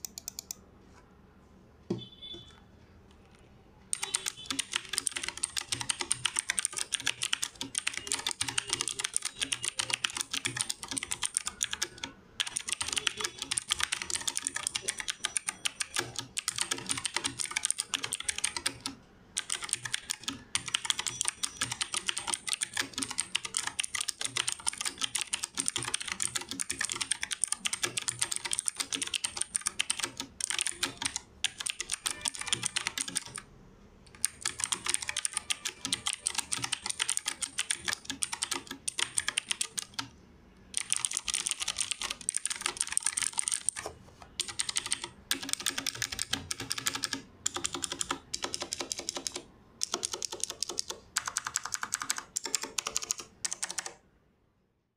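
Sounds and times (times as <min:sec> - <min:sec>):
mechanical keyboard typing: 0:00.0 - 0:00.6, 0:03.9 - 0:33.5, 0:34.1 - 0:40.1, 0:40.7 - 0:54.0.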